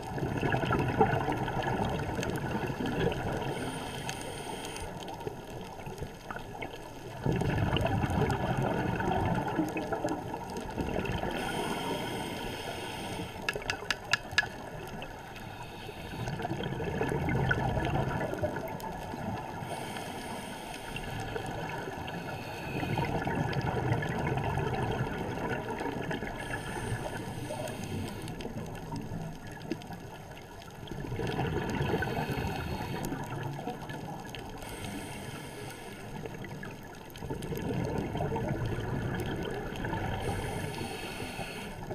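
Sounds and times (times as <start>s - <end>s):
regulator hiss on inhale: 3.2s - 5.3s, 11.2s - 14.4s, 15.2s - 16.7s, 19.5s - 23.3s, 26.3s - 28.7s, 31.9s - 33.5s, 34.5s - 36.5s, 40.1s - 41.9s
sharp clicks: 13.4s - 14.6s.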